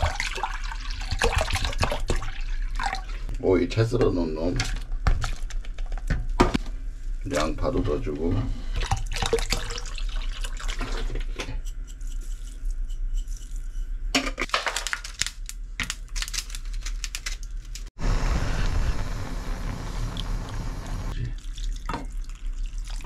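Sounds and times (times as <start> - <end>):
steady hiss: 18.0 - 21.2
water pouring into glass bowl: 21.2 - 23.0.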